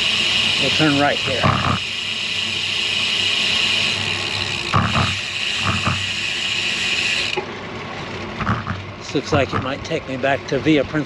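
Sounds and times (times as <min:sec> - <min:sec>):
bicycle tyres on concrete: 0:00.0 - 0:09.8
bicycle bumps: 0:08.4 - 0:09.8.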